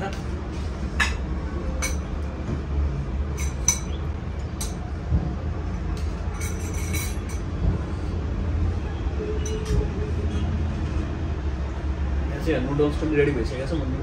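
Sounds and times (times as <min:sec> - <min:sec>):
metal utensils clinking on dishes: 0:01.0 - 0:02.2, 0:03.3 - 0:04.8, 0:06.0 - 0:07.5, 0:09.4 - 0:09.9.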